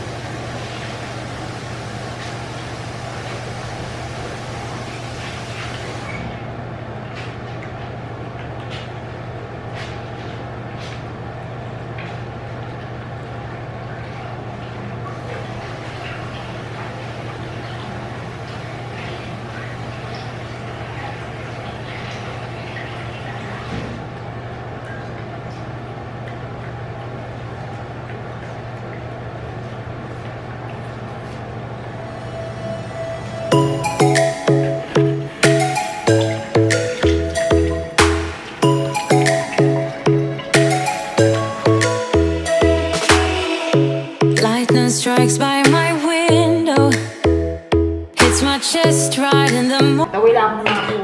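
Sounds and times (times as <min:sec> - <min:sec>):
steady low hum: 0:24.0 - 0:50.1.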